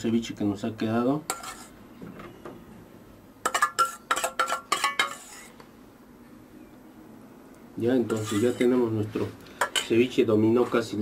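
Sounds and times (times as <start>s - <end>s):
metal spoon clinking against dishes: 3.4s - 5.5s, 9.6s - 10.0s.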